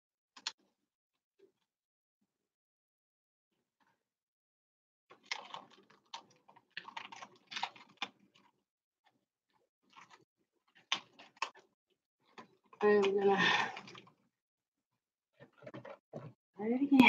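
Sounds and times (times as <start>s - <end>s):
rubber balloon rustling and clicking: 15.4s - 16.4s.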